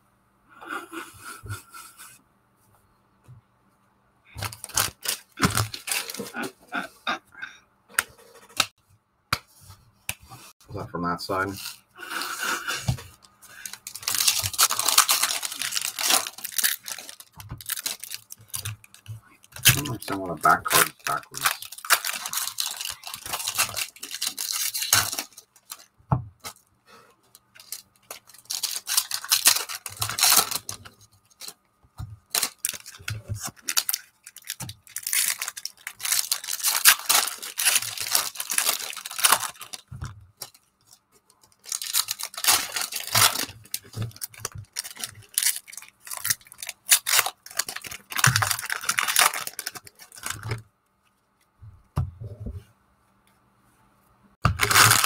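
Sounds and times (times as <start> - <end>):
foil wrappers tearing and crinkling: 4.4 - 6.6, 13.5 - 26.6, 27.4 - 31.6, 32.2 - 40.7, 41.4 - 50.6, 54.5 - 55.0.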